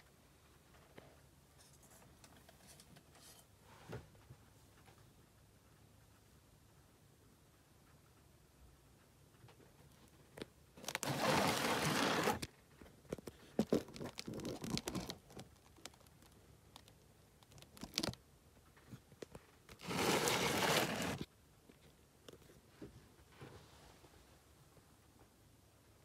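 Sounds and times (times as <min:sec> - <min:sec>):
rustling scraping noise: 0:10.8 - 0:12.5, 0:19.7 - 0:21.3.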